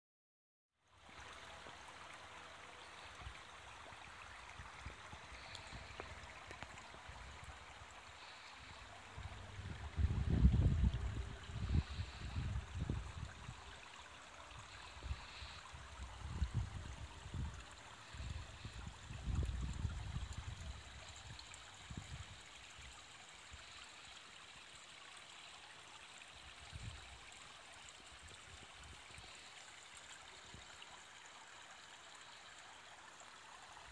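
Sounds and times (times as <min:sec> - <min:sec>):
water trickling: 0:00.8 - 0:33.9
wind rumbling on microphone: 0:08.6 - 0:13.8, 0:14.5 - 0:22.4, 0:26.6 - 0:27.2.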